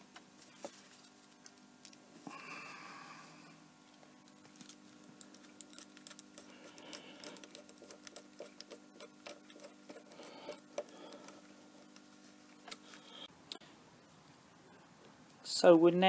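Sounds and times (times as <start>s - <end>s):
steady low hum: 0.0s - 15.4s
small metal parts clicking: 4.5s - 11.4s.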